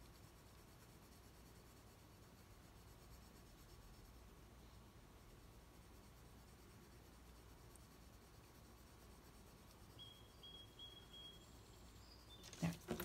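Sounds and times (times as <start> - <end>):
pencil scratching on paper: 0.0 - 4.3, 5.3 - 10.0, 12.3 - 13.0.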